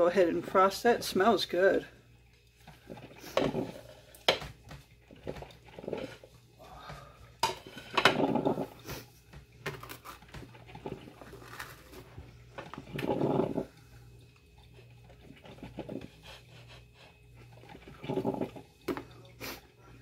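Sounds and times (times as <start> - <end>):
utensils scraping on dishes: 2.9 - 4.4.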